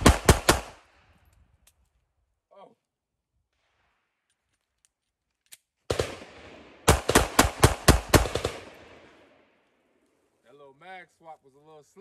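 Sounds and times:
pistol shots with echo: 0:00.0 - 0:00.9, 0:05.9 - 0:09.3.

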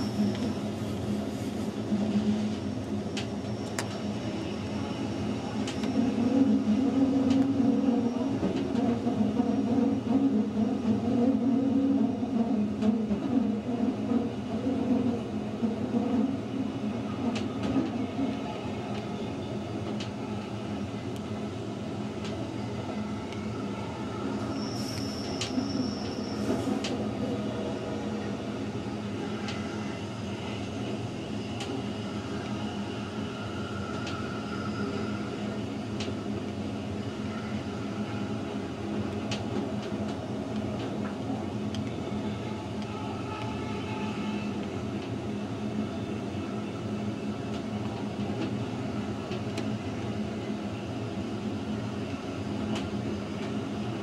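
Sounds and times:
train wheels rumbling on rail: 0:00.0 - 0:54.0
high-pitched wheel squeal: 0:24.4 - 0:26.6.

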